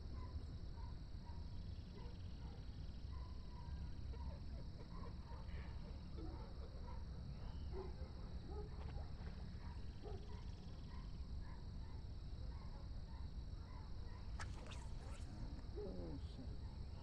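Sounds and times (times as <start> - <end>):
high insect drone: 13.0 - 17.0.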